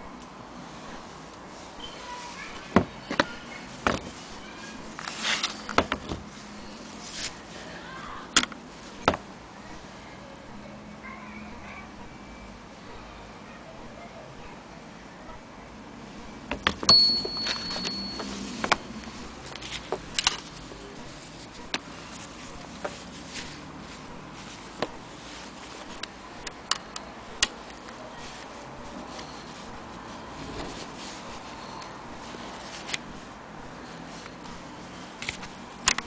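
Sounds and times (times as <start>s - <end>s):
short high ringing tone: 16.9s - 18.5s.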